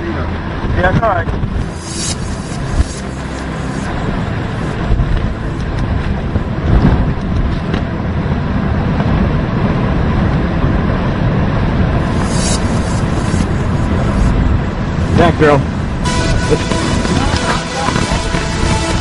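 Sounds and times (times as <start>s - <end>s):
driving rain: 0.0s - 19.0s
wind buffeting microphone: 4.0s - 19.0s.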